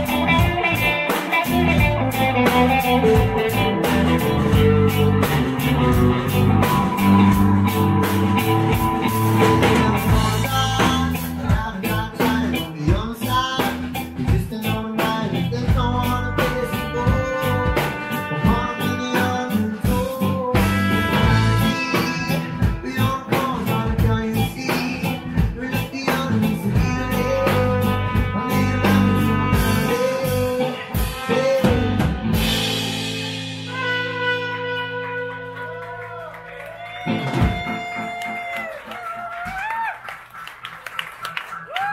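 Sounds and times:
electric bass: 0.0 - 38.5
electric guitar: 0.0 - 40.4
drum kit beat: 0.0 - 41.9
rock band playing: 0.0 - 41.9
trumpet bending notes: 15.9 - 23.4, 26.9 - 36.2.

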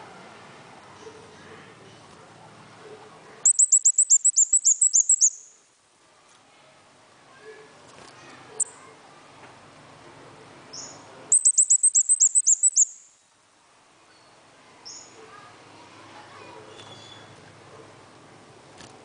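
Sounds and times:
songbird chirping: 3.4 - 5.7, 10.7 - 13.4.

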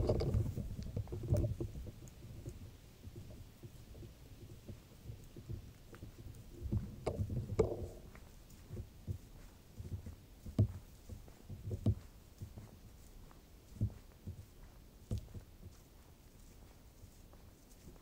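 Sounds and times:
footsteps on dirt trail: 6.0 - 18.0.

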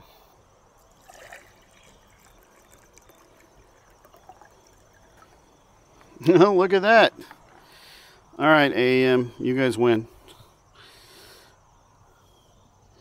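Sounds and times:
liquid trickling into cup: 0.8 - 5.8.

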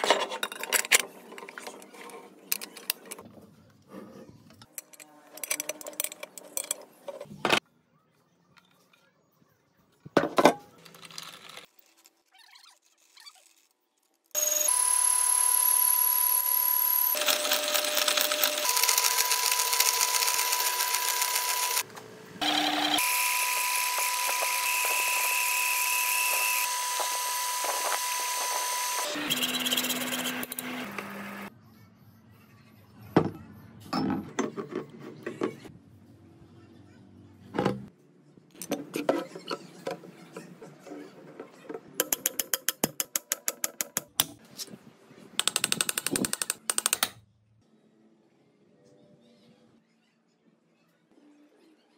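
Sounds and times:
electric power tool whining: 14.4 - 31.5.

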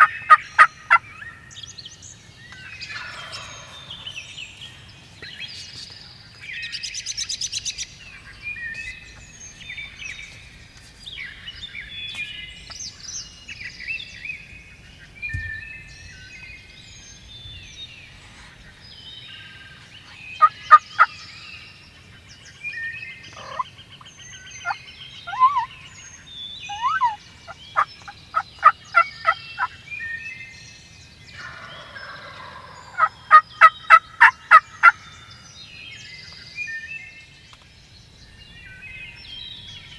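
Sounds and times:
turkey gobble: 0.0 - 1.0, 2.9 - 4.1, 23.3 - 23.7, 24.6 - 25.7, 26.7 - 29.7, 31.4 - 35.0
turkey clucks and yelps: 0.0 - 1.3, 2.9 - 4.1, 20.4 - 21.1, 23.3 - 23.7, 24.6 - 25.7, 26.7 - 29.7, 31.4 - 35.0
songbirds chorus: 0.0 - 39.9.

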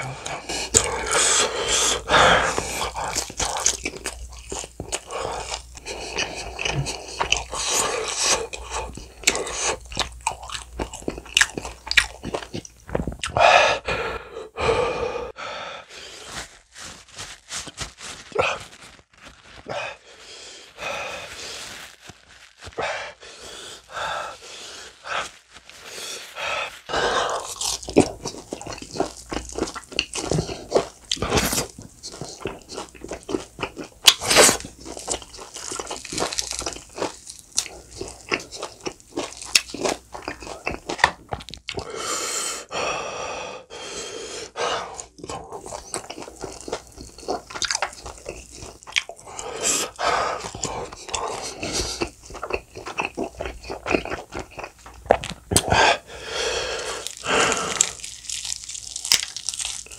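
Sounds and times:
crunching fried chicken: 0.1 - 13.4, 16.1 - 41.9, 45.0 - 59.9
wet smacking and chewing: 0.2 - 13.4, 27.1 - 41.9, 45.0 - 56.0, 56.7 - 59.9.

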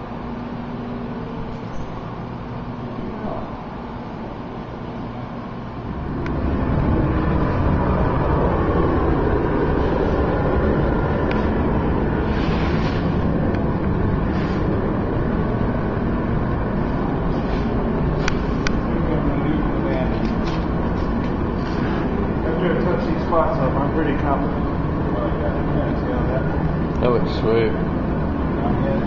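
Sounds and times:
loud machine running: 0.0 - 29.0.

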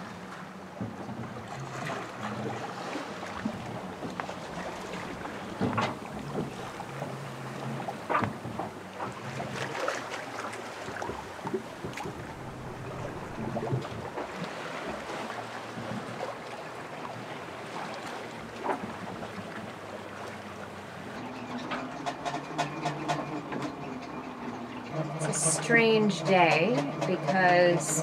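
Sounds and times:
water washing along hull: 0.0 - 28.0
wind: 0.0 - 28.0
boat fittings knocking: 3.4 - 9.6, 10.9 - 14.4, 25.2 - 28.0.

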